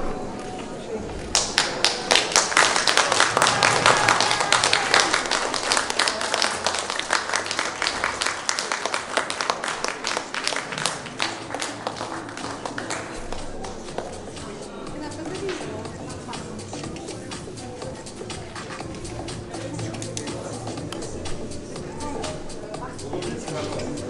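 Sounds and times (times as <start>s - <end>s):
audience applauding: 1.3s - 14.2s.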